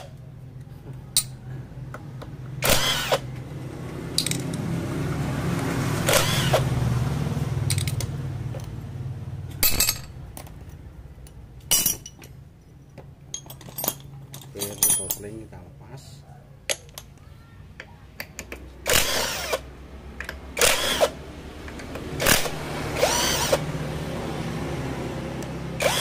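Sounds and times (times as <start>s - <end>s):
low engine hum: 0.0s - 14.6s, 17.9s - 26.0s
metal tools clinking: 1.1s - 1.4s, 4.2s - 4.6s, 7.7s - 8.7s, 9.5s - 15.6s.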